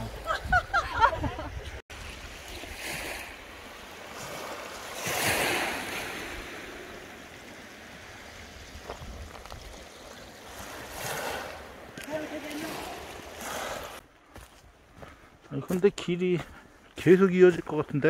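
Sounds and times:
small waves washing onto pebbles: 1.9 - 14.0.

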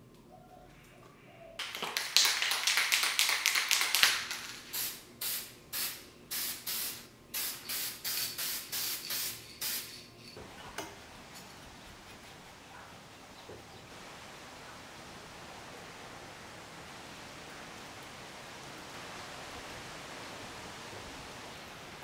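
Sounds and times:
spray can hissing: 3.6 - 10.3.

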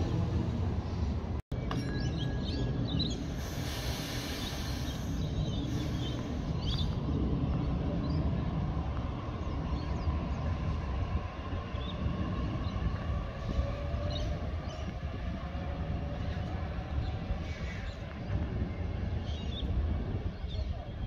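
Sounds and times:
electric train humming: 0.0 - 21.0
small birds chirping: 0.8 - 8.6.

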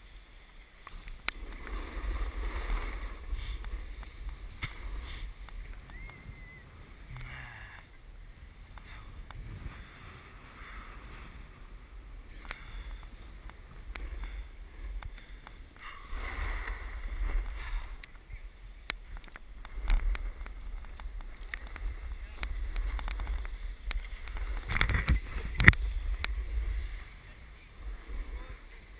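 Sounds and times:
wind rumble on microphone: 0.0 - 28.9
snow hissing under sliding rider: 1.4 - 5.4, 15.8 - 17.9
scattered clicks: 18.8 - 26.4.

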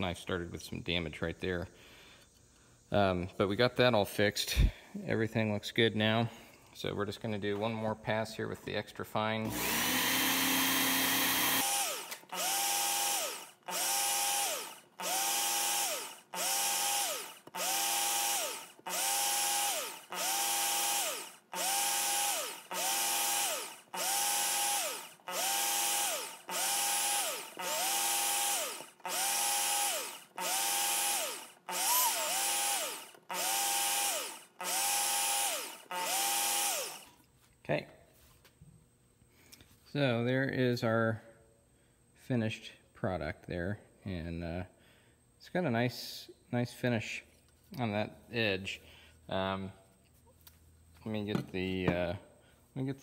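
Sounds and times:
knife sharpener motor whirring: 9.4 - 37.2.

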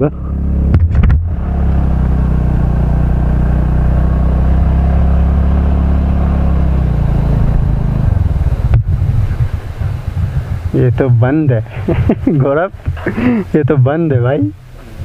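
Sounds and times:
scooter engine running: 0.0 - 10.7.

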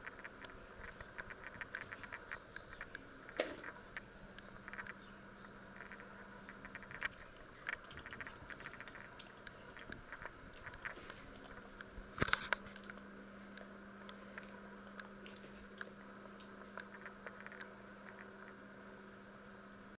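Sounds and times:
faint clicks and knocks: 0.0 - 18.6
faint steady hum: 0.0 - 20.0.

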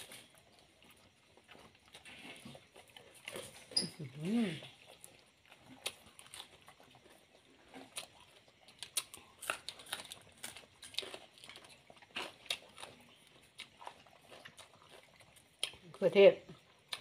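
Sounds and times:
chewing salad greens: 0.0 - 17.0.

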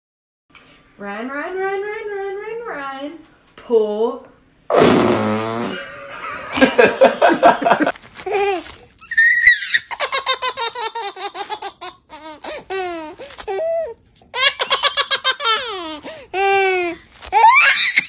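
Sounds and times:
baby laughing: 7.8 - 18.0
baby squealing: 8.3 - 18.0.

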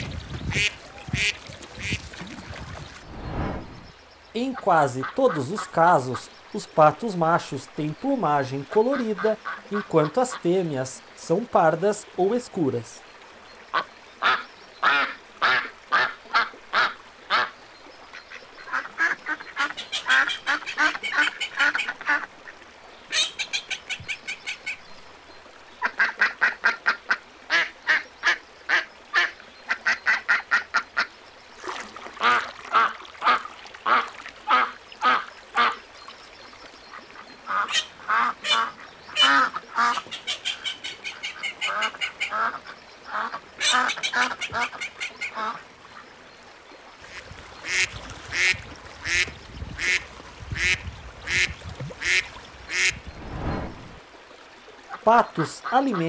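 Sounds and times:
ducks quacking: 47.1 - 53.1.

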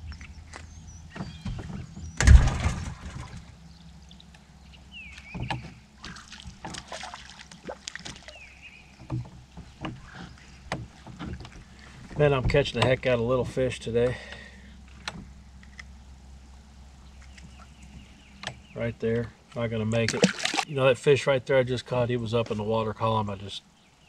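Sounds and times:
loud thump and rustle: 1.4 - 3.5.

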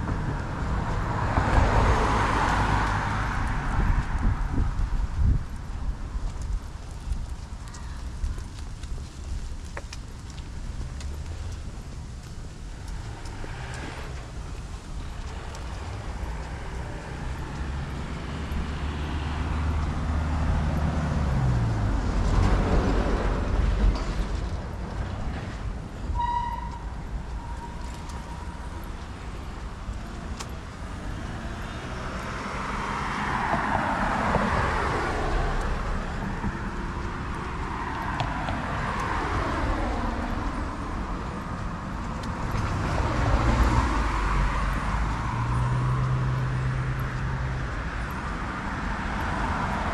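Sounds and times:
cars passing: 0.0 - 49.9
engine humming low: 0.0 - 49.9
short high beep: 26.2 - 26.7.

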